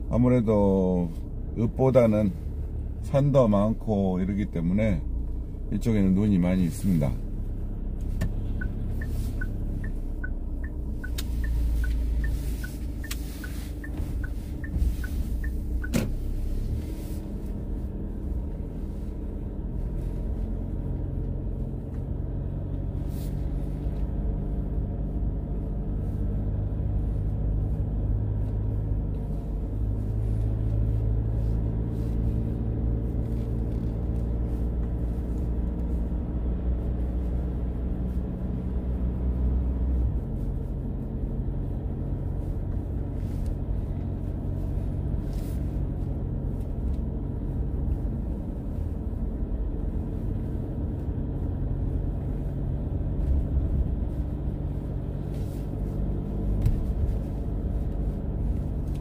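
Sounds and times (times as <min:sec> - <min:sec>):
car road and engine rumble: 0:00.0 - 0:59.0
light ticking: 0:08.2 - 0:16.1.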